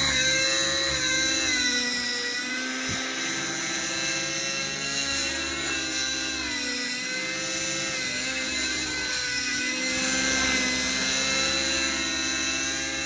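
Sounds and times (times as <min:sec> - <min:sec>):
model helicopter engine whine: 0:00.0 - 0:13.0
rotor buzz: 0:00.0 - 0:13.0.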